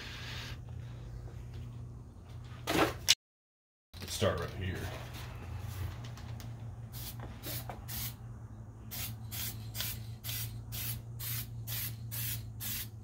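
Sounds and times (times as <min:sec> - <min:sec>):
spray can hissing: 0:06.9 - 0:08.2, 0:08.9 - 0:13.0.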